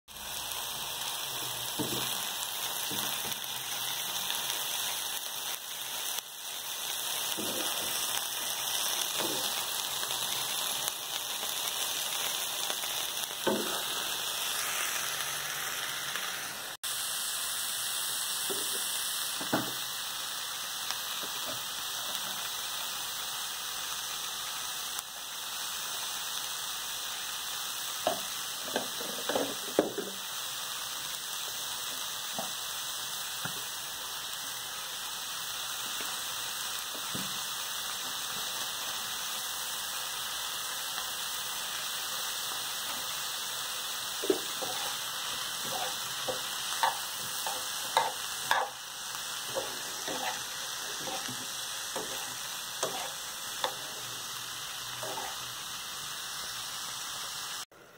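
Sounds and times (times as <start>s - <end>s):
vegetables sizzling in frying pan: 0.1s - 57.9s
stirring scrapes in pan: 44.2s - 48.8s, 49.4s - 54.2s, 55.0s - 55.5s.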